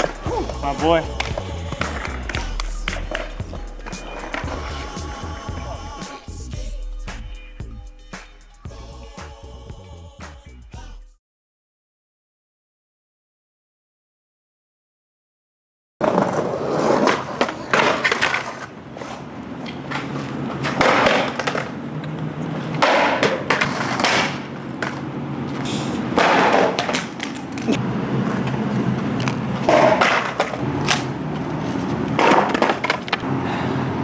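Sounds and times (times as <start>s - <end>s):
skateboard clacks and slaps: 0.0s - 4.6s, 16.0s - 33.3s
skateboard wheels rolling on asphalt: 0.0s - 5.8s, 16.0s - 34.0s.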